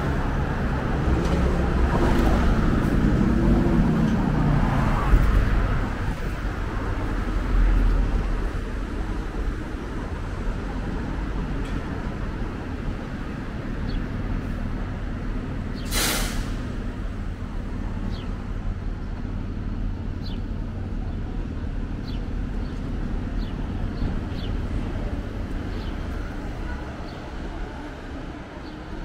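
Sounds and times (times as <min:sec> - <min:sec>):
street traffic rumbling: 0:00.0 - 0:29.0
air brakes hissing: 0:15.8 - 0:16.8.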